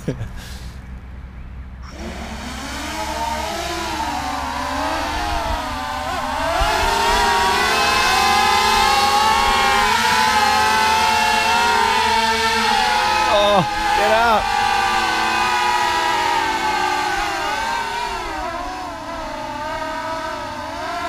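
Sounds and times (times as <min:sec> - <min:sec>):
drone motors whining: 0:01.8 - 0:21.0.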